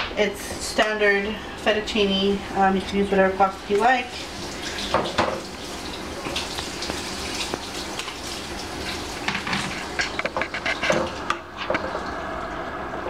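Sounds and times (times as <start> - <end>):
kitchen utensils clattering: 9.2 - 12.0.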